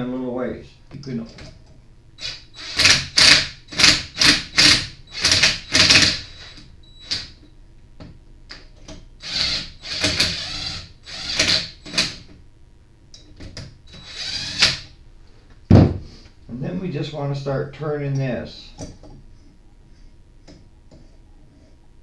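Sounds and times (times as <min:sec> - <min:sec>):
cordless drill whirring: 0:02.2 - 0:06.6, 0:09.2 - 0:12.0, 0:13.9 - 0:14.9.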